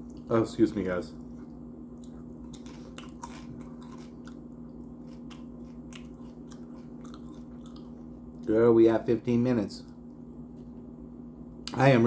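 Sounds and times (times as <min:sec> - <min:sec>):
steady low hum: 0:00.0 - 0:12.0
crunchy chips chewing: 0:02.0 - 0:08.5.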